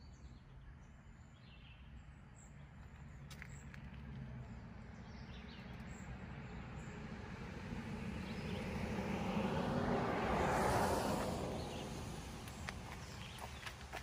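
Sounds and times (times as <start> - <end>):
vehicle driving past: 3.2 - 14.0.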